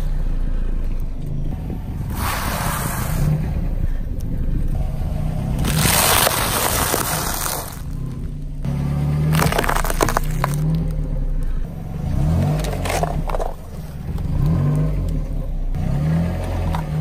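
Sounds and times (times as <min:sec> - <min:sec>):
low car engine hum: 0:00.0 - 0:17.0
tyre crushing crinkling objects: 0:05.6 - 0:08.0, 0:09.3 - 0:11.0, 0:12.5 - 0:13.7.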